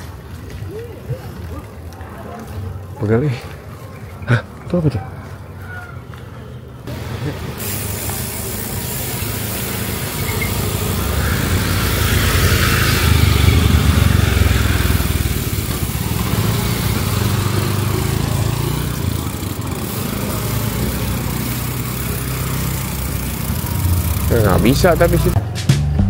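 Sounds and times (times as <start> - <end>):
small motorcycle engines running: 6.9 - 25.4
motorbike riding past: 6.9 - 25.5.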